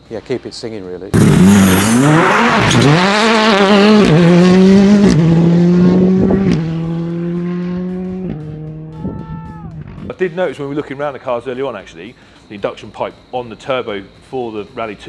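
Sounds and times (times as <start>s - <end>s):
rally car accelerating: 1.2s - 9.0s.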